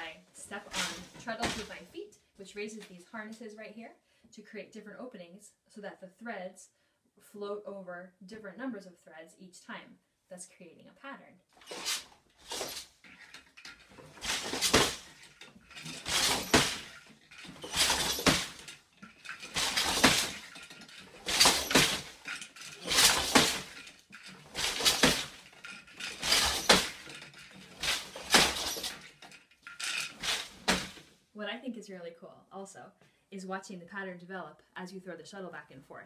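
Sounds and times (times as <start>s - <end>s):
loom clattering: 0.0s - 1.9s, 11.6s - 31.1s.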